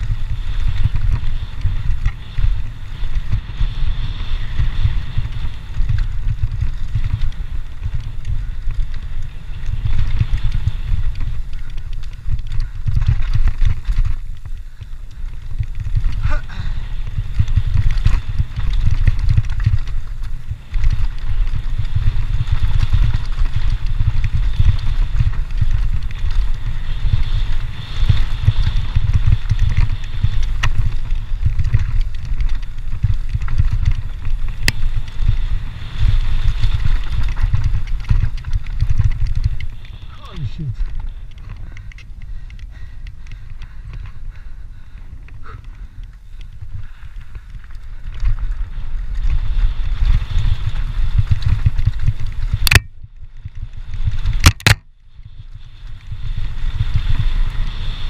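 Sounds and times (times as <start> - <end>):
bike clicks and knocks: 0.0 - 40.2, 50.0 - 56.1
bike tyres rumbling over dirt: 0.0 - 58.0
wind buffeting microphone: 0.0 - 58.0.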